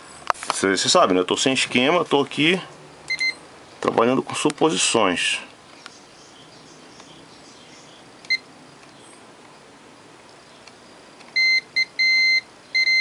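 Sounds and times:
multimeter buzzer beeping: 3.1s - 3.4s, 11.4s - 13.0s.

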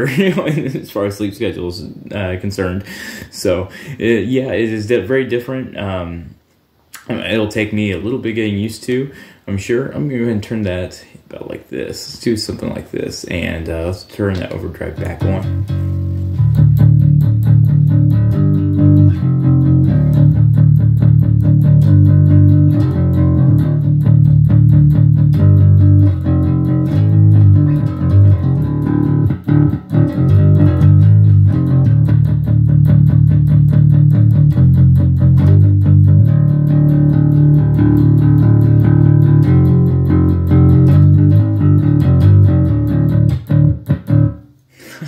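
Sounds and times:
overdriven electric bass notes: 14.8s - 44.5s.

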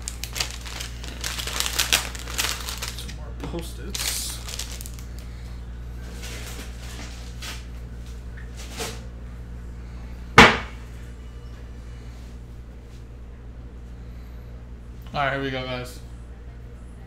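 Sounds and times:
steady low hum: 0.0s - 17.0s
sharp knock: 10.4s - 10.8s.

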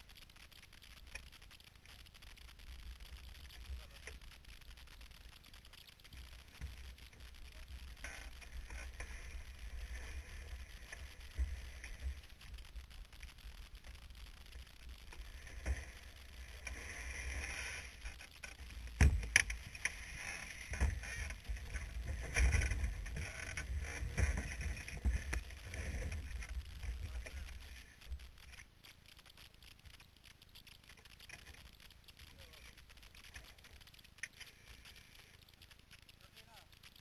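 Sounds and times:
car rolling rumble: 6.0s - 28.6s.

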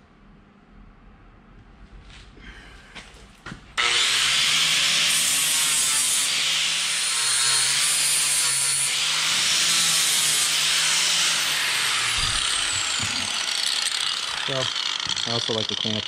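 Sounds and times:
angle grinder grinding metal: 3.8s - 16.0s.

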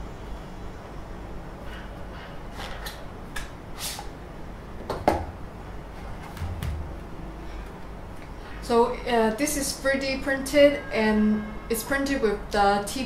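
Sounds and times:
knock on desk: 6.4s - 7.0s
soft thud: 6.4s - 7.0s.

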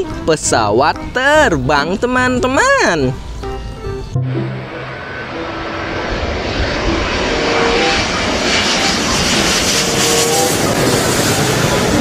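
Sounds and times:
jet airliner passing overhead: 1.0s - 12.0s
jet engine whine: 3.1s - 12.0s.

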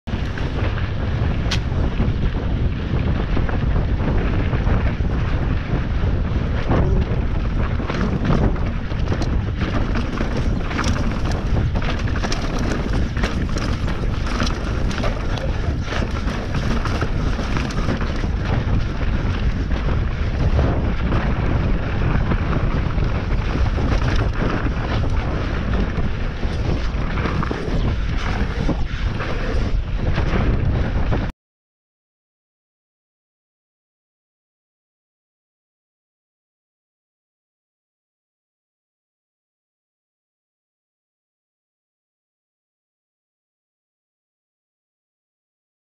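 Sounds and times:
bike tyres on dirt and stones: 0.1s - 31.3s
wind buffeting microphone: 0.1s - 31.3s
bike clattering over rocks: 6.8s - 30.5s.

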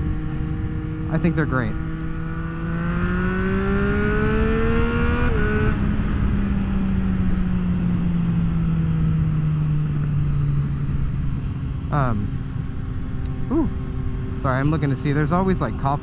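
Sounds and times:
wind rush on microphone: 0.0s - 10.0s
motorcycle engine accelerating: 0.0s - 16.0s.

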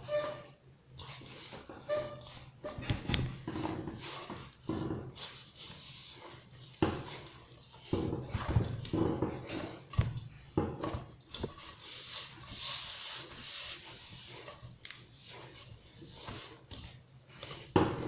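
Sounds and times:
dry dough scraping a bowl: 0.0s - 18.0s
dough thumping in a bowl: 6.7s - 11.7s, 16.2s - 18.0s.

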